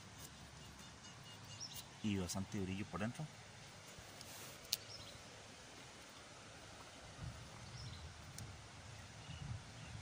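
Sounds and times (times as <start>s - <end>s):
faint bird chirps: 0.2s - 2.3s.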